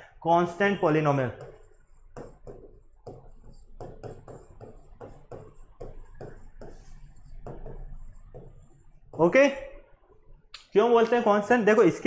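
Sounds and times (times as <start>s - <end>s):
pen scratching on board: 1.3s - 9.3s.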